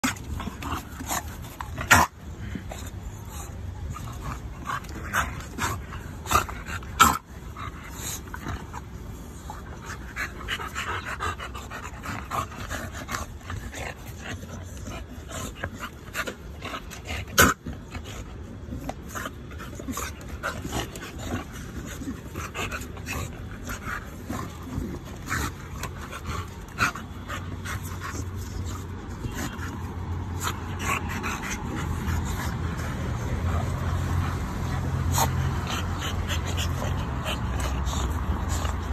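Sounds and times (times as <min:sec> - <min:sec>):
dogs fighting: 0:00.0 - 0:38.9.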